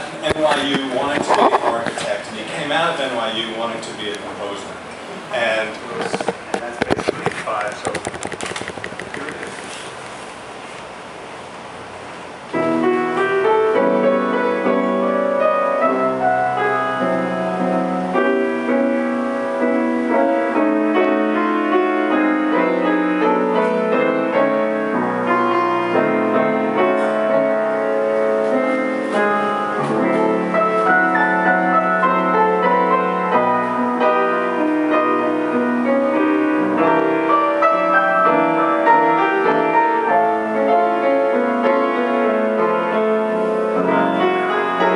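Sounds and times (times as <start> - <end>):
solo grand piano piece: 11.8 - 44.9.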